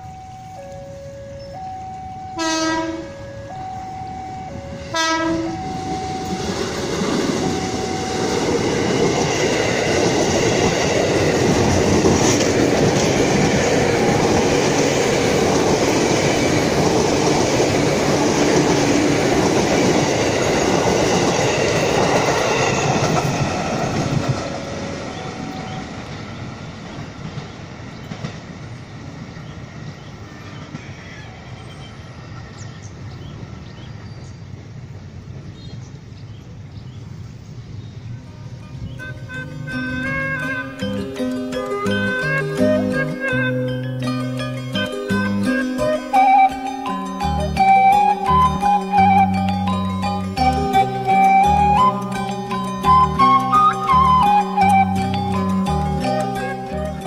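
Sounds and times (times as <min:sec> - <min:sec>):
train horn blasts: 0:00.3 - 0:06.7, 0:07.4 - 0:08.6, 0:38.2 - 0:41.0
train wheels rushing on rail: 0:01.6 - 0:57.0.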